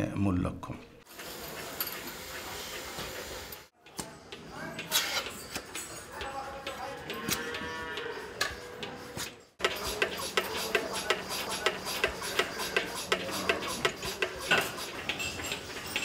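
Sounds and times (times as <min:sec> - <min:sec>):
milking machine pulsator clicking: 0:01.0 - 0:16.0
cow mooing: 0:07.0 - 0:08.4.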